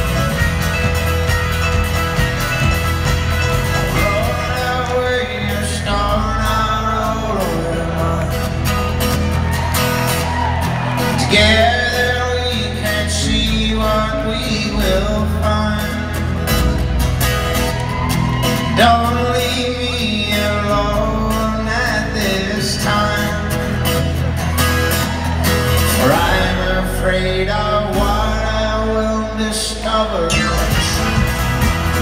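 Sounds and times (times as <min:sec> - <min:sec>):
folk-rock band playing: 0:00.0 - 0:32.0
person singing: 0:03.8 - 0:08.7.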